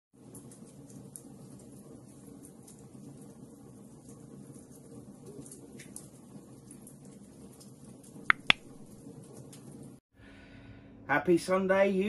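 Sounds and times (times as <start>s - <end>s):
log fire crackling: 0.2s - 10.0s
mouse click sound effect: 8.3s - 8.7s.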